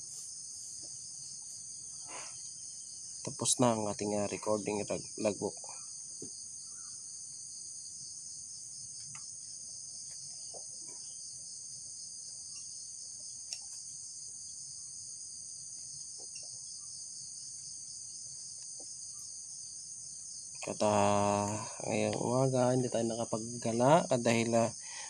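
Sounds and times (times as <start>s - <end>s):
crickets chirring: 0.0s - 25.0s
faint light ticks: 13.4s - 13.8s.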